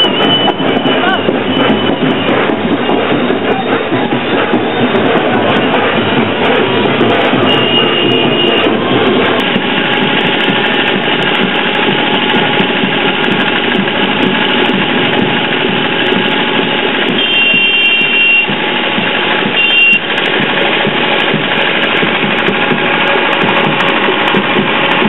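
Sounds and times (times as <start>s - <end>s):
engine running: 0.0s - 25.0s
street din: 0.0s - 25.0s
high horn-like tone: 7.4s - 8.9s, 17.1s - 18.5s, 19.6s - 20.0s.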